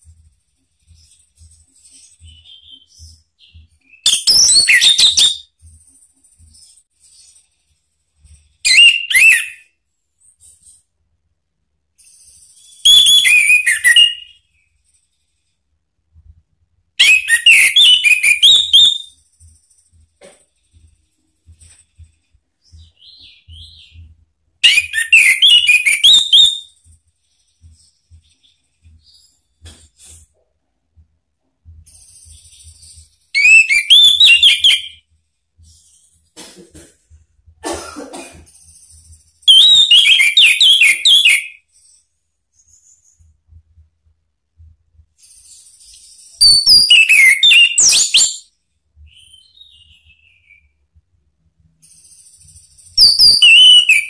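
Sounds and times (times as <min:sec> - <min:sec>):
thrush singing whistled notes: 0:12.1 - 0:14.4, 0:32.2 - 0:35.0, 0:45.5 - 0:50.8, 0:51.8 - 0:54.0.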